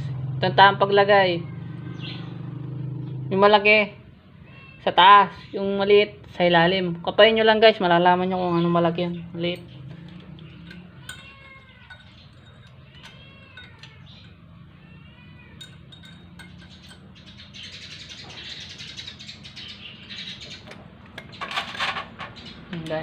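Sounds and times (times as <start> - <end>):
cat meowing: 4.3 - 5.0, 10.0 - 16.7
metallic clicks and rattling: 15.6 - 17.1.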